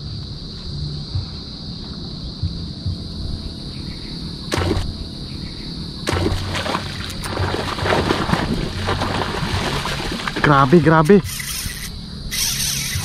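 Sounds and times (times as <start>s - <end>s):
high insect buzz: 0.0s - 13.0s
fish splashing and thrashing: 4.5s - 4.9s, 6.1s - 13.0s
lure splashing on water: 6.1s - 13.0s.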